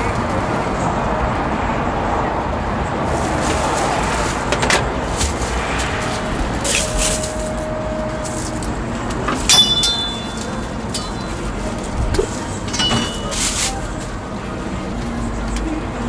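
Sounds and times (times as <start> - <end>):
busy street market noise: 0.0 - 16.0
sharp clink: 9.5 - 11.4.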